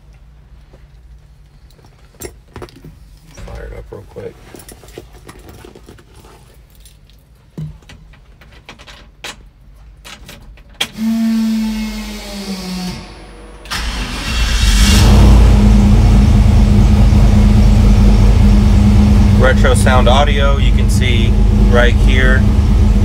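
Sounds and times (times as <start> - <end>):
short steady hum: 11.0 - 23.0
engine cranking and idling: 13.4 - 23.0.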